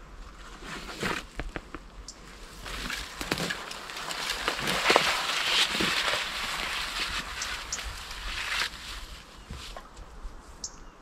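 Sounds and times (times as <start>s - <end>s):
fir branches rustling: 0.1s - 10.7s
dry twigs cracking and snapping: 2.5s - 10.0s.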